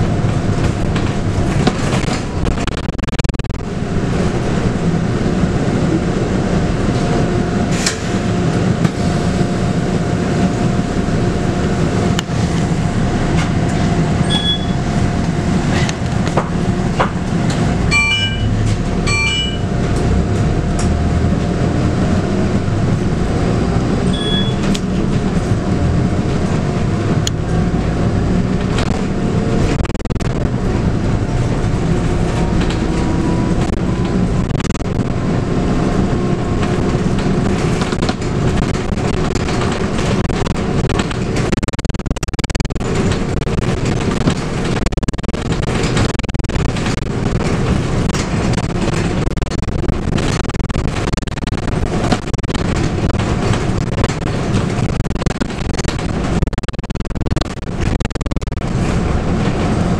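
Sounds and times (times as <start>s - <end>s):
bus diesel engine running: 0.0s - 41.8s, 42.4s - 59.9s
short electronic tones: 14.2s - 14.8s, 17.9s - 19.7s, 24.1s - 24.7s, 41.5s - 42.9s, 56.4s - 58.6s
body rattles and clicks: 36.6s - 59.8s.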